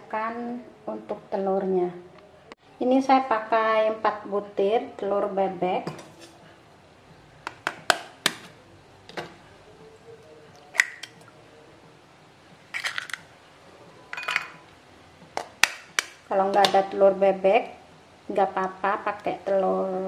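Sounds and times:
egg cracking: 0:10.6 - 0:11.2, 0:12.8 - 0:13.3.

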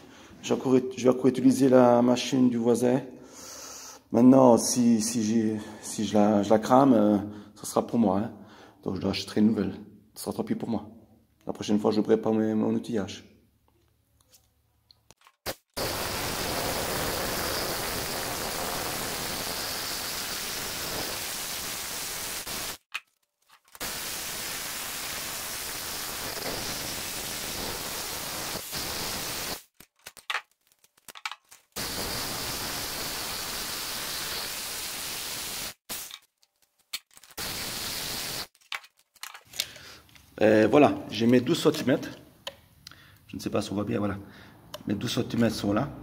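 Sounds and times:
hammer drill boring into concrete: 0:15.8 - 0:22.8.

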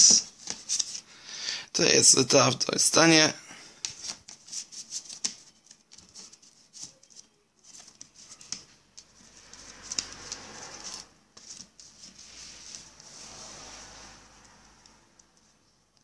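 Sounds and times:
cardboard sleeves rustling: 0:03.8 - 0:16.0.

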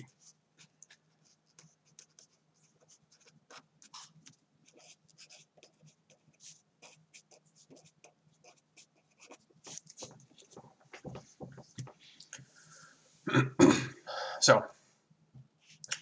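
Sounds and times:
pen scratching on paper: 0:00.2 - 0:12.0.

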